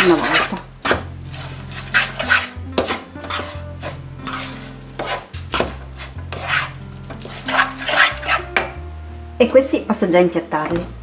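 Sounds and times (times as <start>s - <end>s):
wooden spoon scraping a pan: 0.0s - 8.7s.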